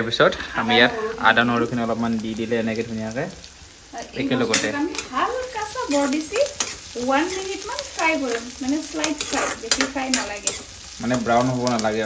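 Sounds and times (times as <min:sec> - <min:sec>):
onions sizzling in hot oil: 0:00.0 - 0:12.0
spatula stirring and scraping pan: 0:03.5 - 0:12.0.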